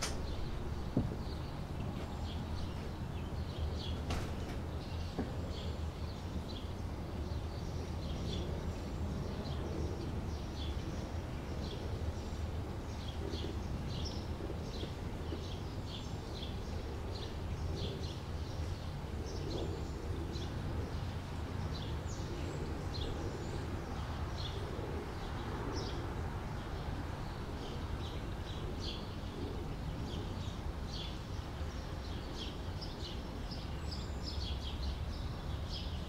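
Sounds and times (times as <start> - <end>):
low background rumble: 0.0 - 21.0
small birds chirping: 0.0 - 36.0.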